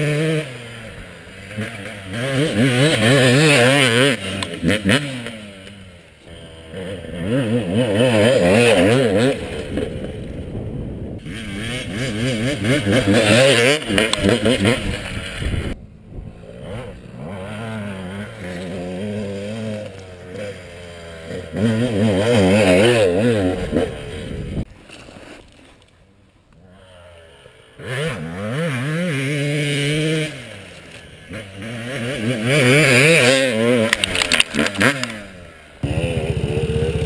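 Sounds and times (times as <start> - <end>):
dirt bike engines revving: 0.0 - 24.7, 25.9 - 37.0.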